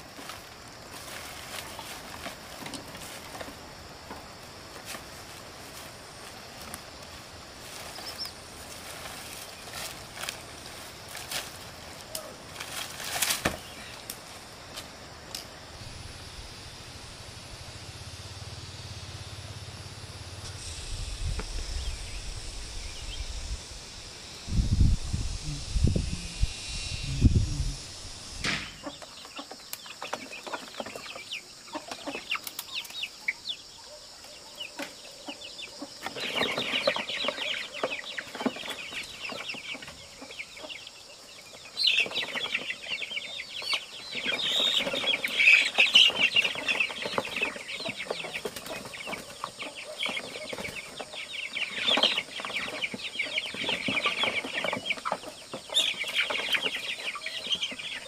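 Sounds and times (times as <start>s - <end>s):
chickens clucking agitatedly: 28.6s - 33.4s, 34.6s - 58.0s.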